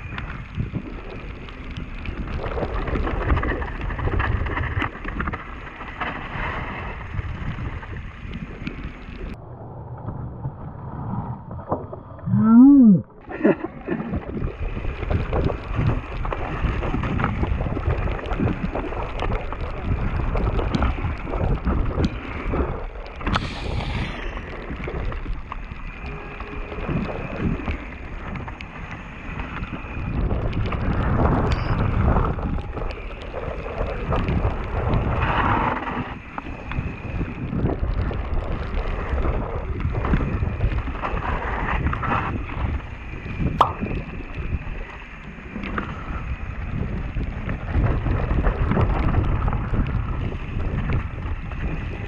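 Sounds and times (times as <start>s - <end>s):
wind rushing over microphone: 0.0s - 52.0s.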